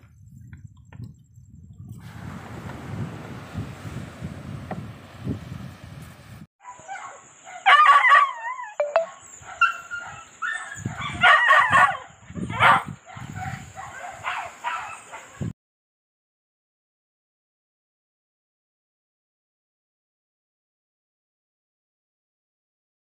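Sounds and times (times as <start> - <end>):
dog yelps and whines: 6.6 - 15.4
thin high-pitched tone: 8.8 - 9.2.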